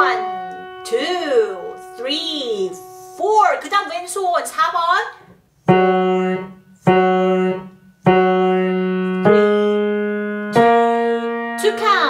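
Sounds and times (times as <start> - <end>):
slow piano notes: 0.0 - 4.0, 5.6 - 12.0.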